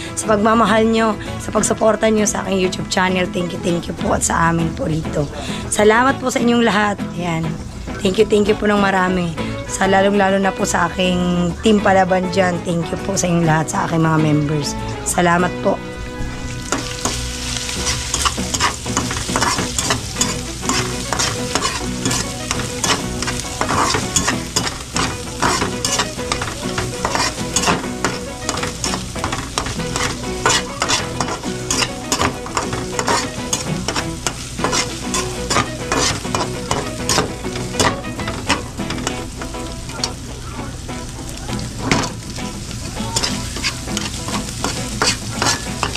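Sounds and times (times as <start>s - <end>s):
food sizzling in pan: 14.8s - 45.9s
utensil scraping and clinking pan: 16.6s - 40.1s, 43.2s - 45.9s.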